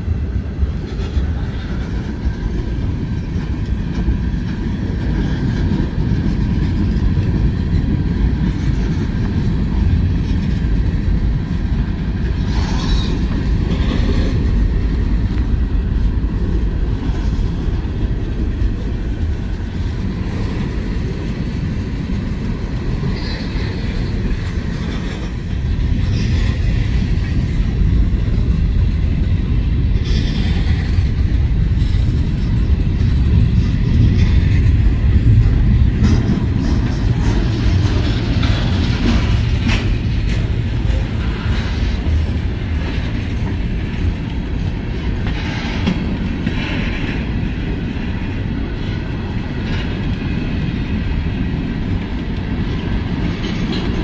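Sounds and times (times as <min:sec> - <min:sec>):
clickety-clack over rail joints: 0:00.0 - 0:54.0
train wheels rumbling on rails: 0:00.0 - 0:54.0.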